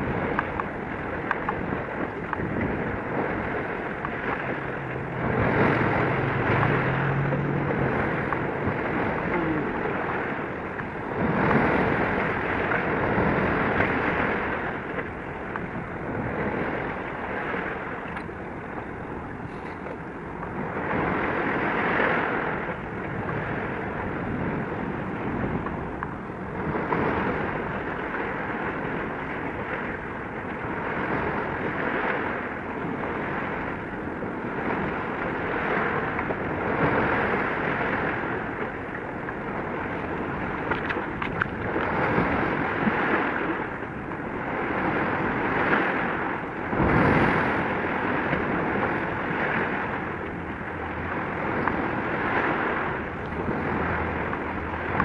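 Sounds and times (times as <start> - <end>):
sea waves: 0.0 - 55.0
wind rushing: 2.5 - 12.1.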